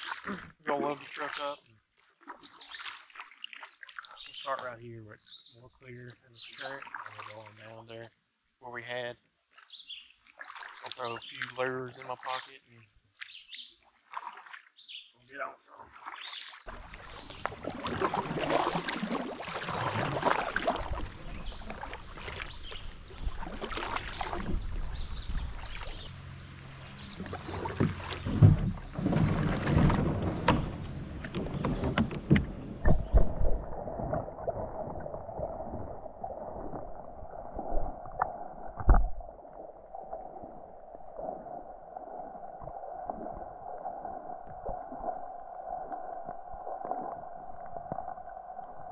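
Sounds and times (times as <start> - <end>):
paddle splashing in water: 0.0 - 4.6, 6.4 - 8.0, 9.4 - 15.0, 15.7 - 39.2
muffled underwater sound: 16.7 - 26.1, 32.8 - 48.9
paddle knocking against kayak: 27.1 - 33.5.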